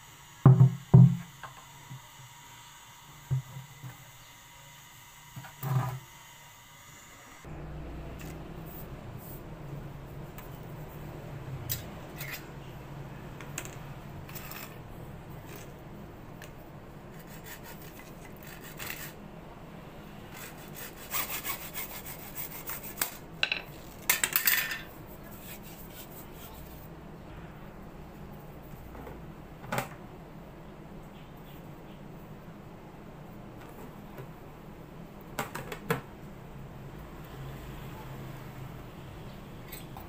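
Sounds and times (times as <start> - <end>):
knock: 0.5 - 1.3
hacksaw cutting plastic pipe: 20.4 - 23.2.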